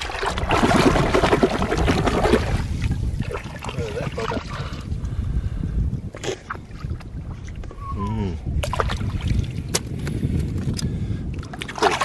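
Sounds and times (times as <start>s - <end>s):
water dribbling: 0.0s - 4.8s
water lapping: 0.0s - 5.2s, 11.4s - 12.0s
wind rumbling on microphone: 0.0s - 12.0s.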